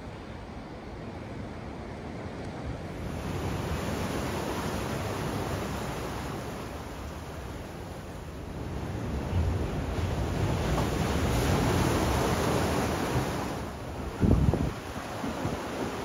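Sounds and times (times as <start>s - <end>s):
ocean surf washing on shore: 0.0s - 16.0s
wind on microphone: 8.7s - 16.0s.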